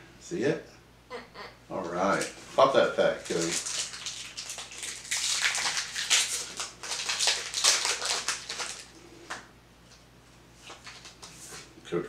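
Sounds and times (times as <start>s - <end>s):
foil wrapper crinkling and ripping: 3.2s - 9.0s, 10.6s - 11.6s.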